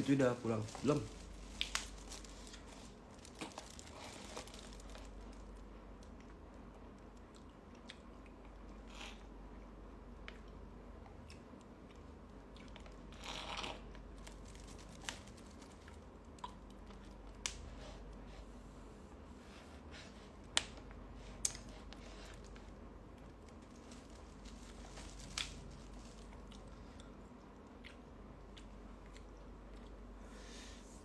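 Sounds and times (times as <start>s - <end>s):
plastic wrapper crinkling: 0.0s - 5.7s, 14.0s - 16.1s, 23.2s - 26.5s.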